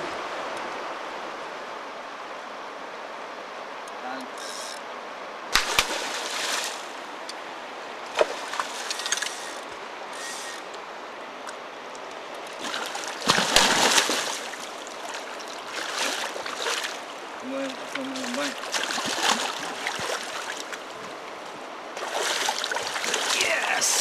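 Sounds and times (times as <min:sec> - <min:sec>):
river current rushing: 0:00.0 - 0:24.0
fish thrashing and splashing: 0:05.6 - 0:07.0, 0:12.6 - 0:17.1, 0:18.1 - 0:20.8, 0:22.0 - 0:23.8.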